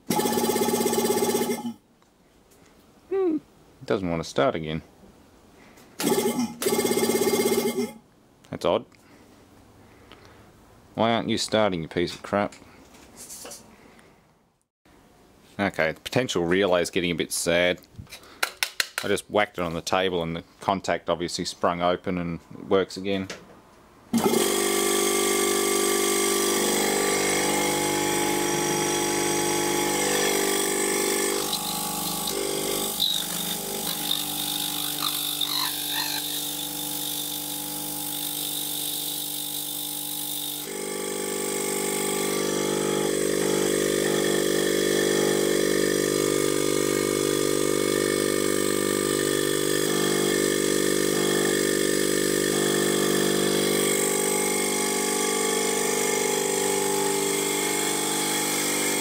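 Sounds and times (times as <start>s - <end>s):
compressor motor humming: 24.1s - 59.0s.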